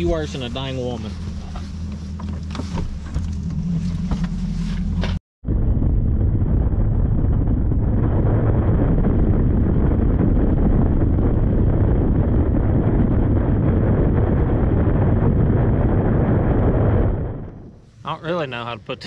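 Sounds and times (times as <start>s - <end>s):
outboard motor running: 0.0s - 5.2s
wind buffeting microphone: 0.0s - 19.0s.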